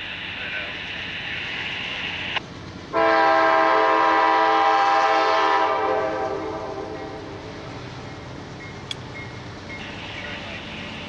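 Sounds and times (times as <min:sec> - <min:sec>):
locomotive air horn blast: 0:02.9 - 0:07.4.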